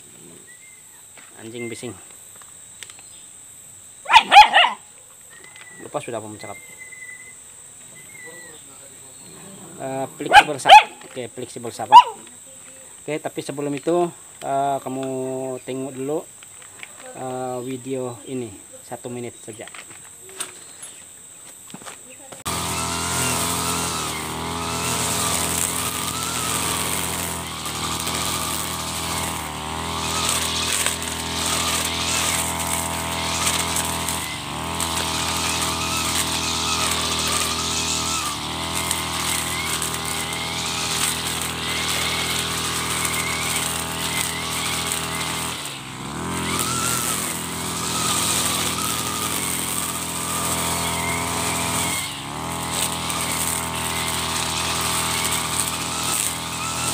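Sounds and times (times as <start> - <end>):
brush cutter engine running: 4.1 - 4.8, 9.1 - 12.4, 22.4 - 56.9.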